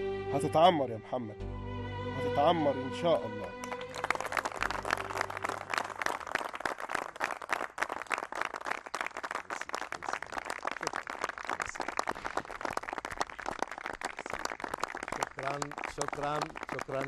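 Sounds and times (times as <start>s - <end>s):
audience applauding: 3.5s - 17.0s.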